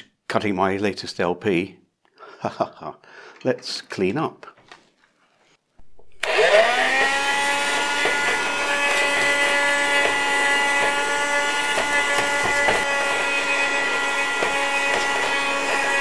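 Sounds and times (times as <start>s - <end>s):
handheld vacuum cleaner motor whine: 6.0s - 16.0s.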